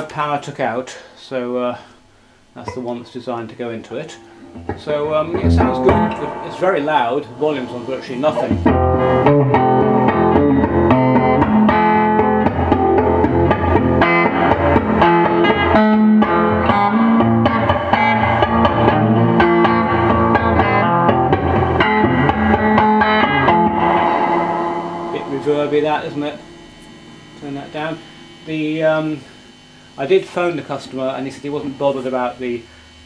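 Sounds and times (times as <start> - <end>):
electric guitar with spring reverb: 2.6 - 30.0.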